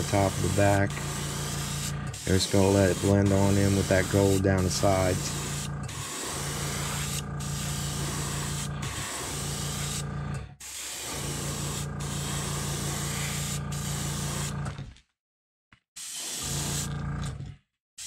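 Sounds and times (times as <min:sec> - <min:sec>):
airbrush spraying hiss: 0:00.0 - 0:10.0, 0:10.7 - 0:14.5
air compressor humming: 0:00.0 - 0:14.7.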